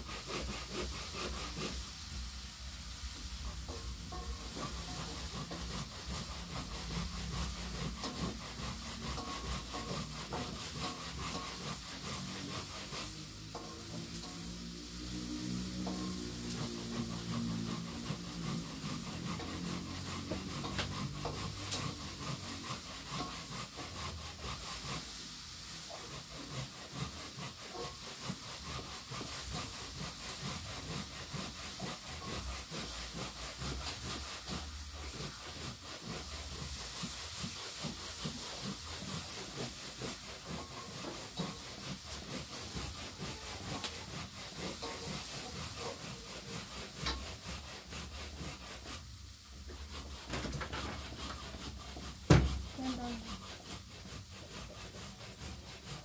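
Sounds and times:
food sizzling in hot oil: 0:00.0 - 0:56.0
metal spatula scraping pan: 0:00.0 - 0:56.0.

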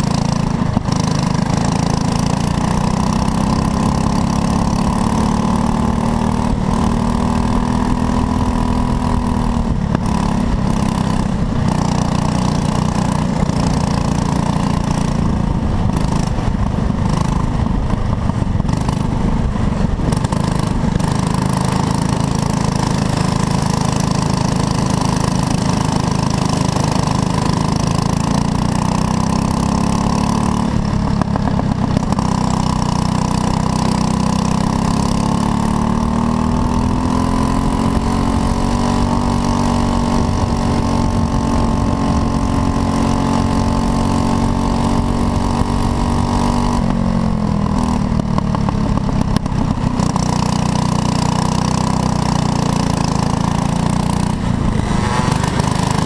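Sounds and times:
racing kart engine: 0:00.0 - 0:56.0.

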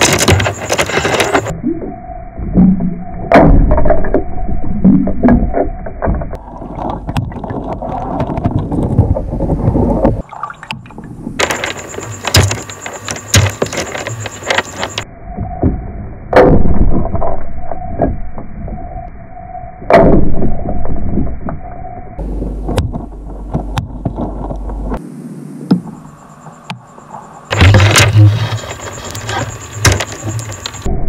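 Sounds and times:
sharp clicks and knocks: 0:00.0 - 0:01.5, 0:05.0 - 0:15.0, 0:22.6 - 0:25.0, 0:27.5 - 0:30.9.

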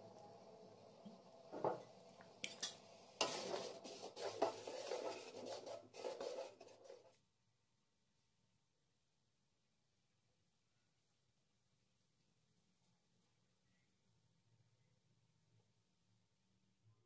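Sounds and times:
spoon scraping metal pan: 0:02.4 - 0:07.2.

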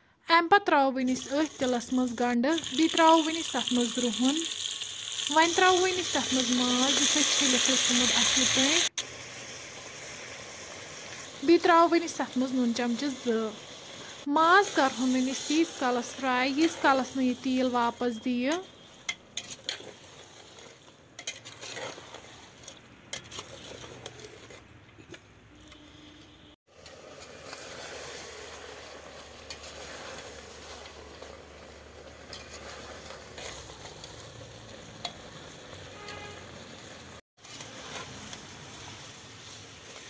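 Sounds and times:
food sizzling in oil: 0:00.9 - 0:24.7, 0:26.0 - 0:40.0
metal spoon scraping a pot: 0:14.8 - 0:36.3.

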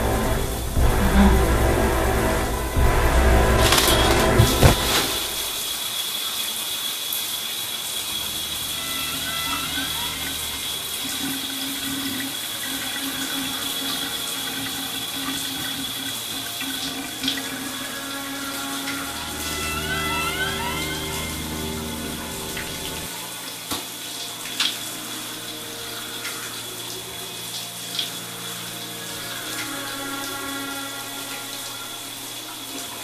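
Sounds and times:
steady high tone: 0:00.0 - 0:05.7, 0:17.6 - 0:23.5
shower water running: 0:00.0 - 0:33.0.

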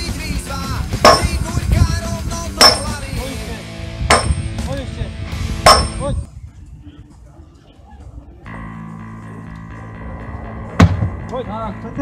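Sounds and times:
background pop music: 0:00.0 - 0:04.5
sledgehammer blows on metal: 0:01.0 - 0:01.5, 0:02.6 - 0:03.0, 0:04.1 - 0:04.6, 0:05.6 - 0:06.2.

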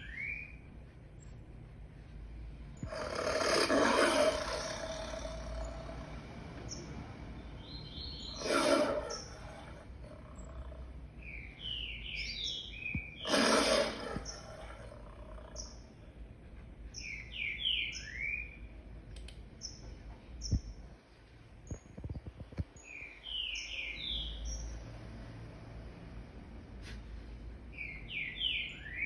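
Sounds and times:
birds chirping: 0:00.0 - 0:01.7, 0:02.5 - 0:21.0, 0:21.6 - 0:25.0, 0:27.6 - 0:29.0
lion roaring: 0:02.8 - 0:06.4, 0:08.3 - 0:11.0, 0:13.2 - 0:15.9.

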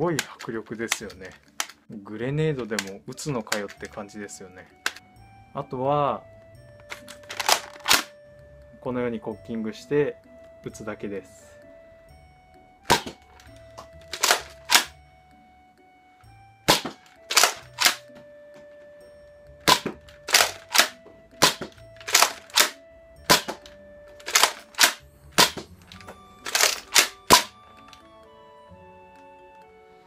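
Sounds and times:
light background music: 0:00.0 - 0:30.0
toy blaster clacks and air pops: 0:00.2 - 0:01.8, 0:04.8 - 0:05.0, 0:07.0 - 0:08.1, 0:12.9 - 0:13.5, 0:14.1 - 0:14.9, 0:16.7 - 0:18.0, 0:19.6 - 0:28.0.

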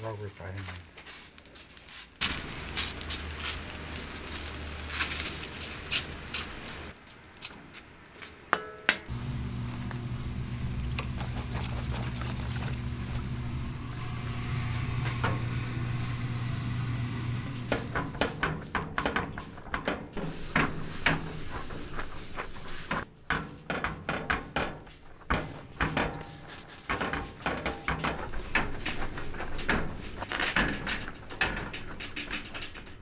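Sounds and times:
hands handling rice: 0:00.5 - 0:08.4
steady low hum: 0:09.1 - 0:18.8
rice paddle scraping rice in pan: 0:20.2 - 0:23.0.

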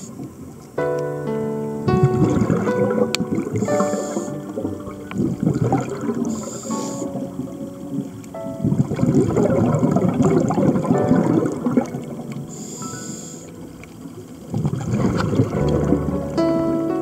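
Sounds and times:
regulator hiss: 0:00.0 - 0:02.2, 0:03.3 - 0:08.9, 0:12.2 - 0:14.9
faint music notes: 0:00.0 - 0:17.0
exhaled bubbles underwater: 0:01.9 - 0:16.7.

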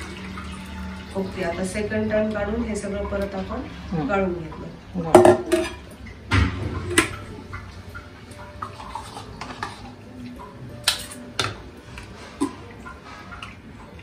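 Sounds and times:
steel bowl and sieve clinking: 0:05.0 - 0:14.0.

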